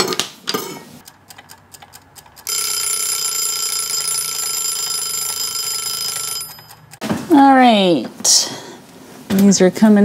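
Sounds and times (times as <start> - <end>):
kitchen timer ticking: 1.0 - 7.0
timer bell ringing: 2.5 - 6.9.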